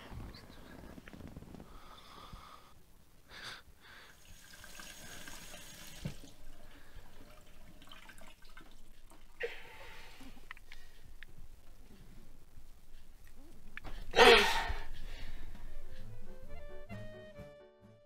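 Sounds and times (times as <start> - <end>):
tap running into a sink: 4.7 - 6.3.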